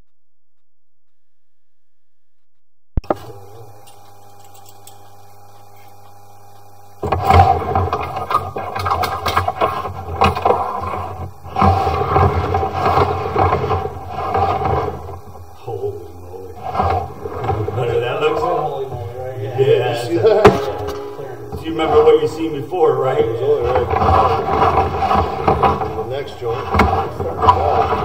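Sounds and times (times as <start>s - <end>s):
steady low hum: 3.0s - 28.0s
cable scraping and rattling in pipe: 7.0s - 15.4s, 16.4s - 28.0s.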